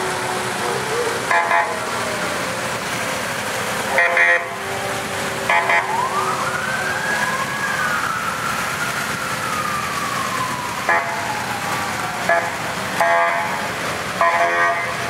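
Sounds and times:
horn-like siren blasts: 0.0s - 2.3s, 3.9s - 8.2s, 9.5s - 15.0s
siren wail: 0.0s - 2.9s, 3.9s - 13.7s
second siren wail: 5.5s - 13.7s.

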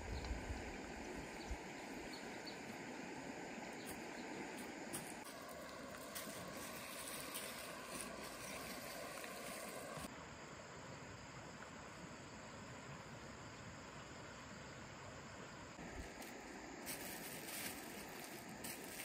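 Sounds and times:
stream flowing: 0.0s - 14.6s.

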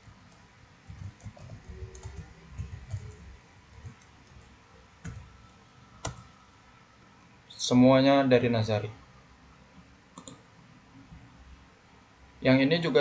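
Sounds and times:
computer keyboard typing: 0.3s - 6.4s, 10.2s - 10.4s.

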